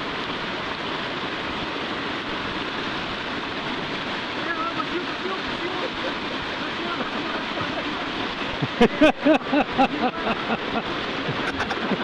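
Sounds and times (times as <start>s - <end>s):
whitewater rushing: 0.0s - 12.0s
person's voice: 4.4s - 8.1s.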